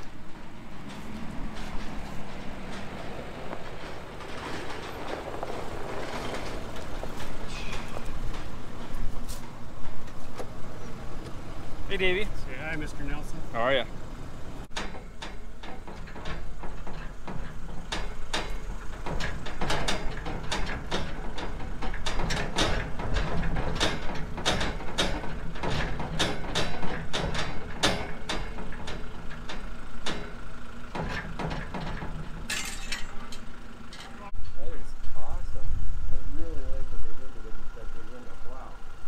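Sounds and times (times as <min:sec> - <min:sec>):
flatbed trailer rattling and clanking: 0:00.0 - 0:39.0
truck engine humming: 0:00.0 - 0:39.0.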